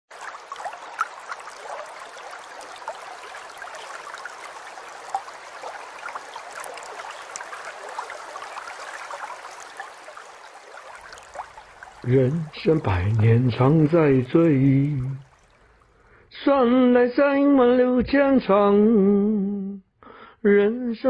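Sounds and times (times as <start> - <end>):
running water bubbling: 0.1 - 16.2.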